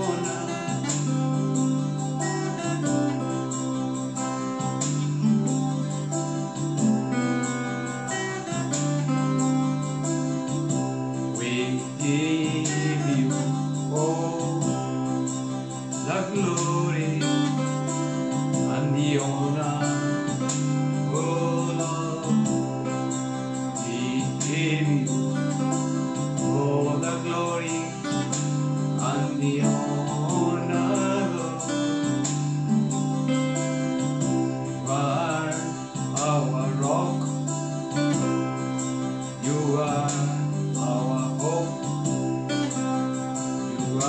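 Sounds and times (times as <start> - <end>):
man singing: 0.0 - 3.6, 11.2 - 32.8, 34.6 - 42.8, 43.6 - 44.0
acoustic guitar strumming: 0.0 - 44.0.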